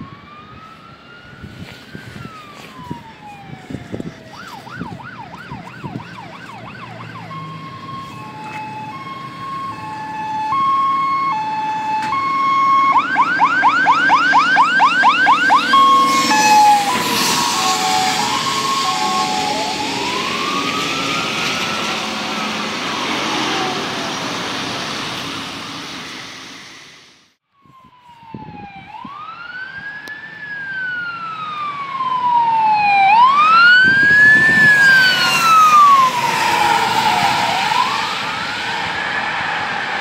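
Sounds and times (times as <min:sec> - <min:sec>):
fire engine wail sirens: 0:00.0 - 0:40.0
tyres hissing on wet road: 0:16.2 - 0:27.3, 0:34.9 - 0:40.0.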